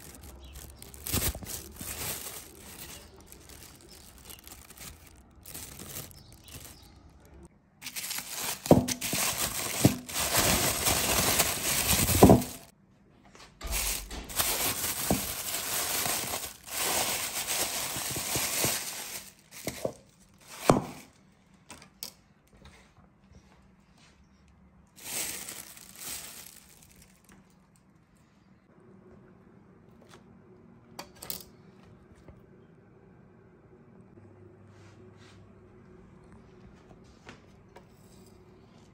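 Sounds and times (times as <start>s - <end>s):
plastic bag crinkling: 0.0s - 12.7s, 13.6s - 21.2s, 25.0s - 27.6s.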